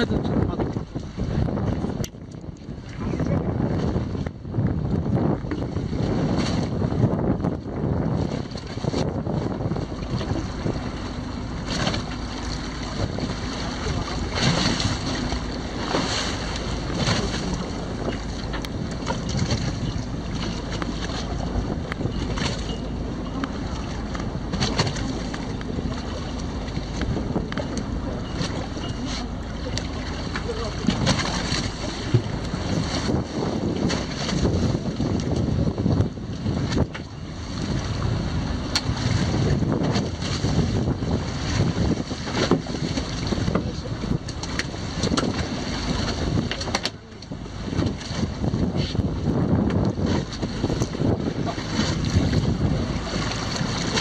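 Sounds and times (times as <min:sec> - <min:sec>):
wind and sea water rushing: 0:00.0 - 0:54.0
fish knocking against hull: 0:11.6 - 0:35.5, 0:42.3 - 0:47.0.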